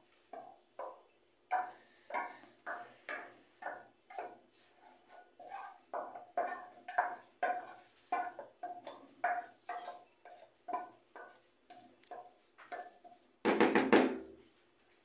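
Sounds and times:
utensil knocking on mixing bowl: 0:12.2 - 0:14.3.

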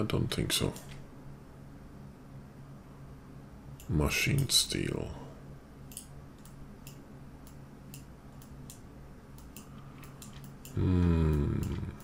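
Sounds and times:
low steady hum: 0:00.0 - 0:12.0
computer mouse clicks: 0:05.9 - 0:11.8
man humming hmm: 0:10.6 - 0:12.0.

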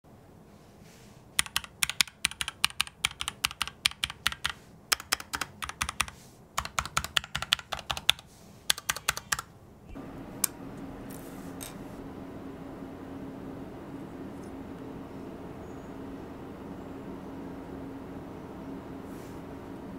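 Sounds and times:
faint low hum: 0:00.1 - 0:19.9
mechanical keyboard typing: 0:01.4 - 0:09.5.

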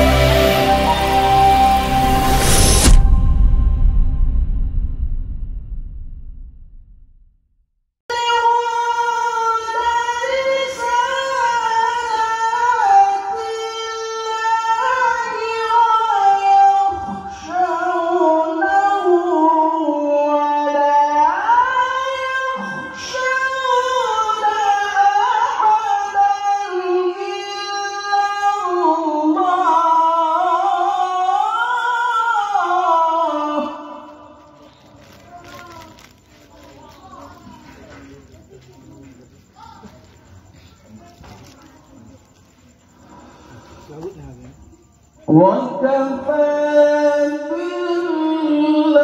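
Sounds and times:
man reciting melodically: 0:45.3 - 0:49.0.

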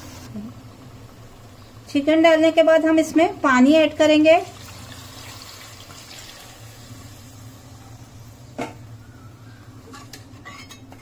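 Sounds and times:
water pouring into pot: 0:04.4 - 0:07.3.

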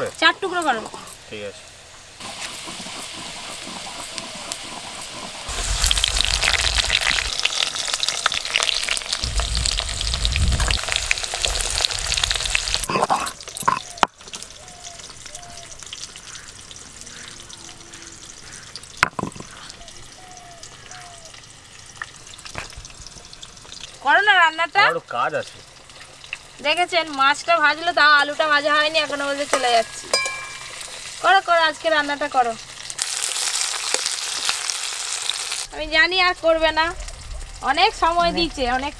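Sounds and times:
food sizzling in hot oil: 0:00.0 - 0:38.9.

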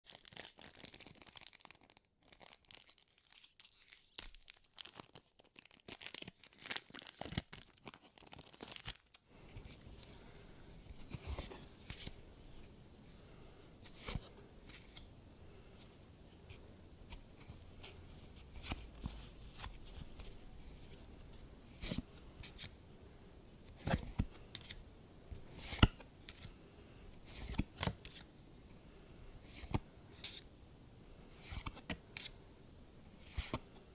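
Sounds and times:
foil wrapper tearing and crinkling: 0:00.1 - 0:09.2
playing cards sliding and flipping: 0:10.9 - 0:12.2, 0:13.8 - 0:15.1, 0:25.5 - 0:26.5, 0:27.2 - 0:28.3, 0:29.4 - 0:30.5, 0:31.3 - 0:32.4, 0:33.2 - 0:33.6.

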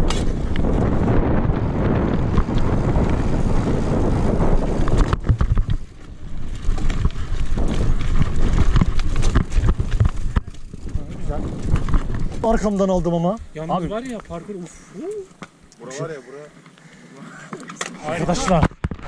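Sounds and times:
bike rattling and knocking: 0:00.0 - 0:14.6, 0:17.8 - 0:19.0
wind buffeting microphone: 0:00.0 - 0:14.6.

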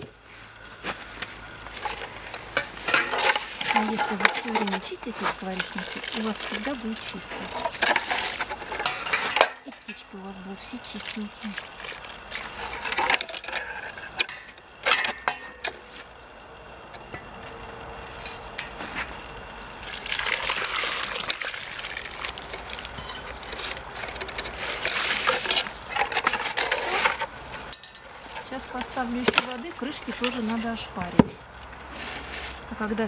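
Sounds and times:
water pouring and splashing: 0:10.6 - 0:13.6, 0:19.7 - 0:27.2.

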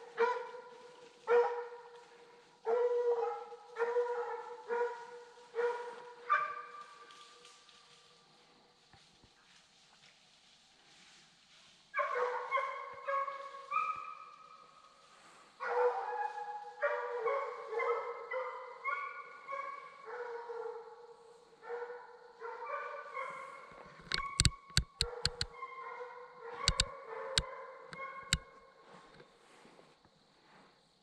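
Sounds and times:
hounds baying: 0:02.7 - 0:07.1, 0:12.0 - 0:14.4, 0:15.6 - 0:21.0, 0:21.7 - 0:28.6.

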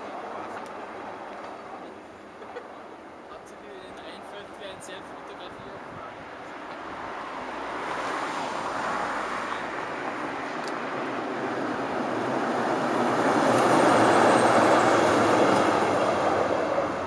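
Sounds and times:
tram rolling: 0:06.5 - 0:17.0.

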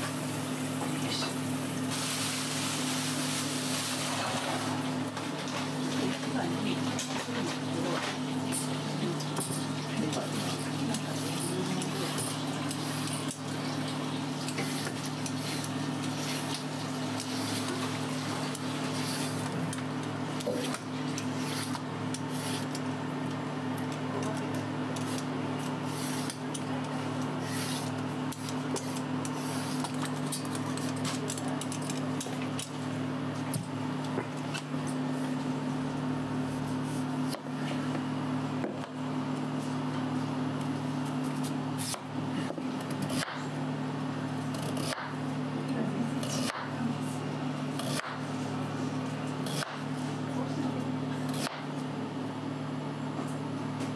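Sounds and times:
vegetable peeler scraping: 0:10.3 - 0:13.4, 0:14.5 - 0:16.6, 0:17.2 - 0:17.8, 0:18.8 - 0:19.6, 0:20.4 - 0:22.8, 0:25.0 - 0:26.4, 0:27.4 - 0:32.0.

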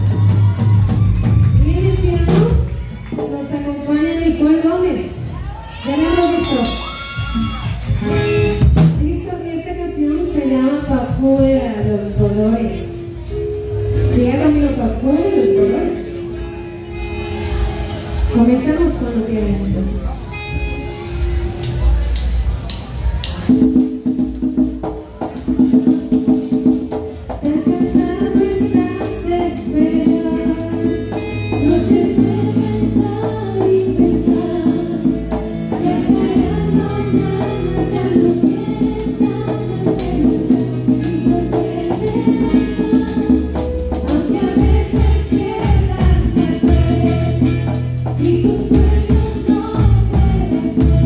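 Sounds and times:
live latin band playing: 0:00.0 - 0:51.0
voices singing: 0:14.5 - 0:18.3, 0:27.4 - 0:51.0.

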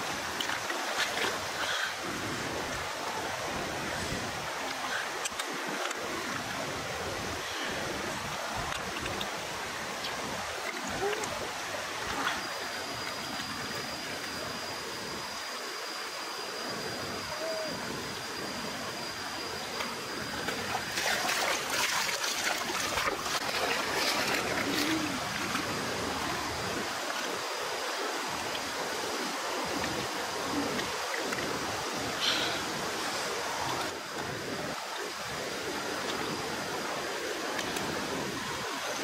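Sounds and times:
stream running over rocks: 0:00.0 - 0:39.0
faint high steady tone: 0:12.0 - 0:20.7
fish splashing in water: 0:20.6 - 0:25.6.

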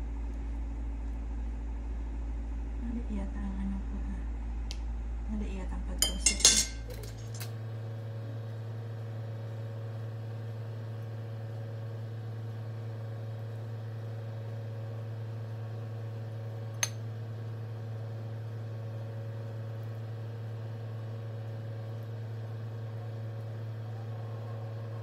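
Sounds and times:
metal skewers clinking on ceramic: 0:06.0 - 0:07.5
low hum: 0:19.7 - 0:25.0.

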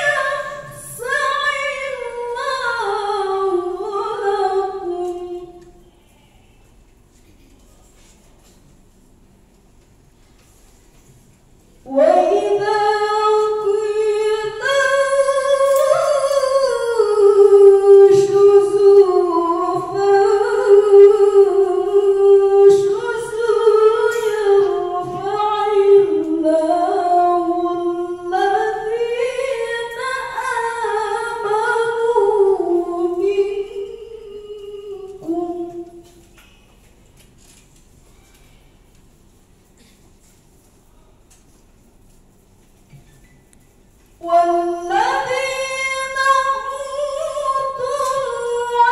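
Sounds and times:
woman chanting verses: 0:00.0 - 0:06.8, 0:11.8 - 0:36.4, 0:44.2 - 0:48.9.

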